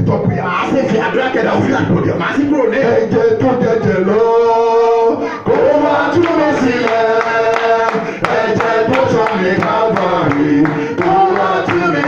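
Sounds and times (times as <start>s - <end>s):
men singing amplified worship song: 0.0s - 12.0s.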